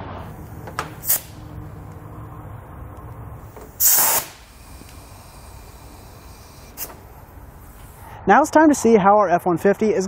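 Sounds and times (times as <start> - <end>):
compressed air hissing: 0.3 - 1.9, 3.4 - 8.1.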